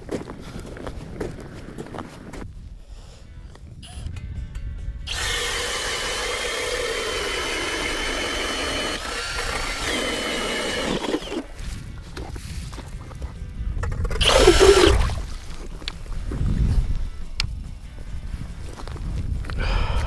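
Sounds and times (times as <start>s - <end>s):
power ice auger drilling: 5.1s - 11.5s, 14.2s - 15.2s.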